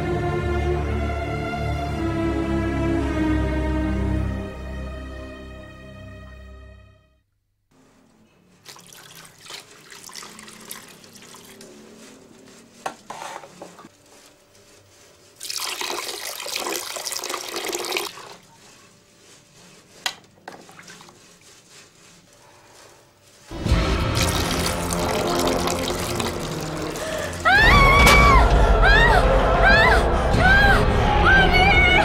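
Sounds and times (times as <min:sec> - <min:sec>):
water sloshing in plastic tub: 0:08.6 - 0:11.9, 0:20.0 - 0:21.4
water pouring: 0:08.6 - 0:12.1, 0:15.4 - 0:18.5, 0:20.4 - 0:21.6, 0:23.5 - 0:27.7.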